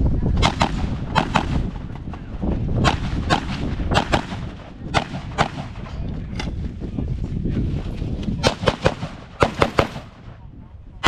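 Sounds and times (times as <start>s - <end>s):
rifle shots with echo: 0.4s - 5.9s, 8.4s - 10.4s.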